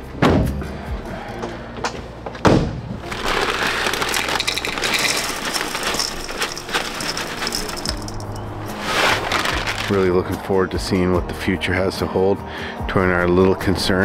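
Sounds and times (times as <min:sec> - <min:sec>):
cereal poured into bowls: 0:03.0 - 0:10.1.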